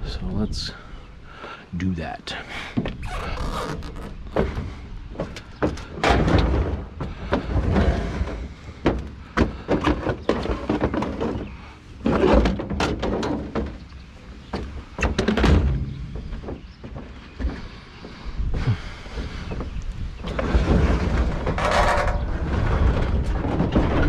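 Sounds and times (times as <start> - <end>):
scrap metal thuds and bangs: 4.4 - 13.9, 14.6 - 17.8, 20.2 - 24.0.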